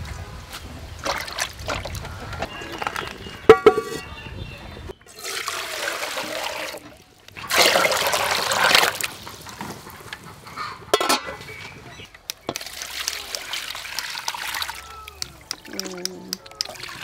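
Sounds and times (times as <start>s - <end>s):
water splashing in metal basin: 1.0s - 2.2s, 5.1s - 9.6s, 12.1s - 17.0s
water poured into metal pot: 5.1s - 9.3s, 12.5s - 14.8s.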